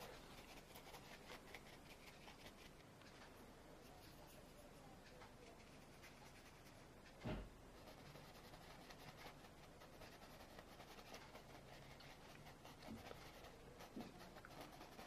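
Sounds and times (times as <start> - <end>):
paintbrush dabbing on canvas: 0.0 - 2.9, 3.8 - 15.0
soft thump: 7.2 - 7.6.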